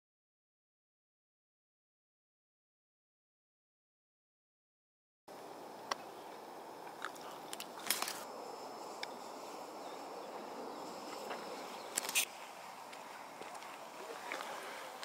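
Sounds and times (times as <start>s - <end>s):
open-air hiss: 5.3s - 15.0s.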